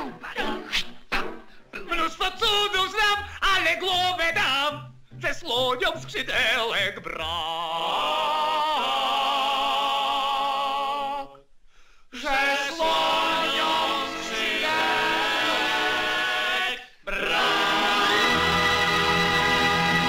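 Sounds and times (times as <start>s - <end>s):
male voices singing in harmony: 6.4s - 11.4s, 12.2s - 20.0s.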